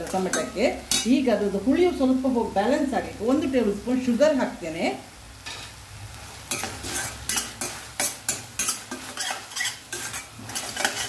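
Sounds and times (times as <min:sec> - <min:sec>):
low frying sizzle: 0:00.0 - 0:11.0
steel spoon scraping pan: 0:06.5 - 0:11.0.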